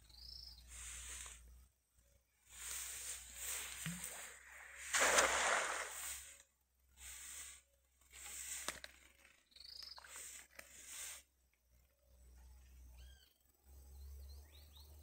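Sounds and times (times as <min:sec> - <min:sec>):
cast net splashing into river: 0:03.6 - 0:06.4.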